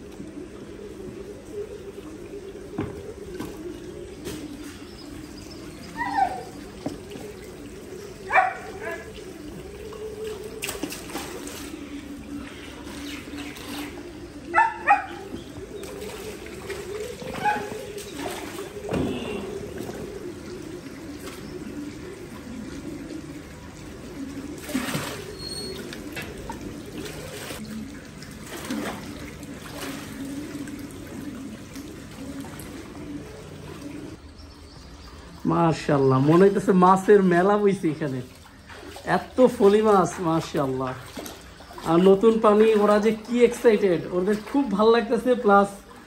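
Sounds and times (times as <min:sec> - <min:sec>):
water pouring into pond: 0:00.0 - 0:46.0
animal calls: 0:03.1 - 0:27.6.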